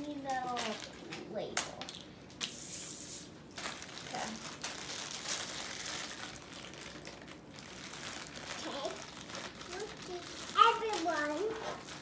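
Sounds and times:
packaging crumpling: 3.4 - 12.0.

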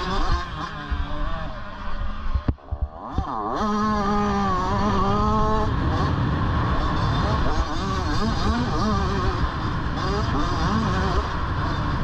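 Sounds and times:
low wind rumble on microphone: 0.0 - 12.0
motorbike engine revving: 0.0 - 12.0.

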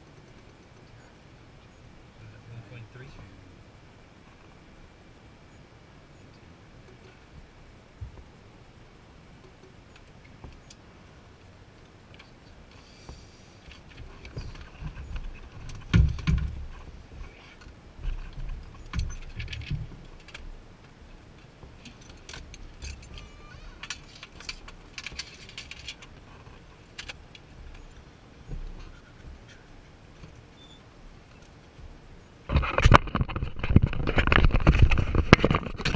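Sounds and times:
light metallic rattles: 11.4 - 35.9
clicks of gear: 12.1 - 29.6
dull thumps of gear handled: 13.9 - 16.9.

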